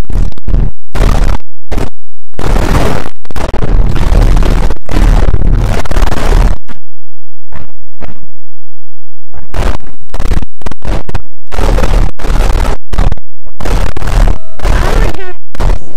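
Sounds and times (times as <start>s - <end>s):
clipped noise bursts: 9.4s - 15.9s.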